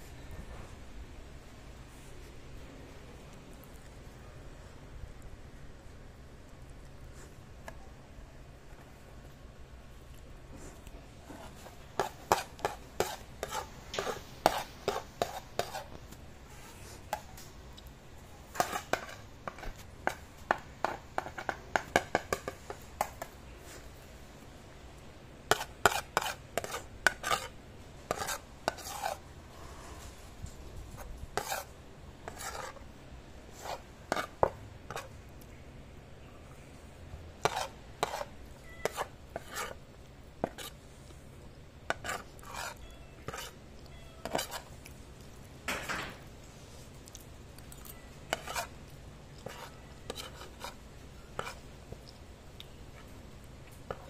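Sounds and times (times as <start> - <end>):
metal spoon scraping ceramic plate: 18.5 - 19.8, 25.5 - 29.2, 31.4 - 31.7, 32.3 - 32.8, 37.4 - 39.8, 41.9 - 43.6, 44.2 - 44.7, 48.3 - 48.7, 49.4 - 50.8.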